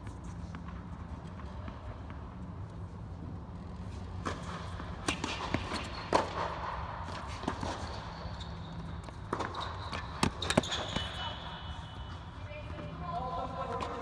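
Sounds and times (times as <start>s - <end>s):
racket strikes and ball bounces: 3.9s - 12.2s.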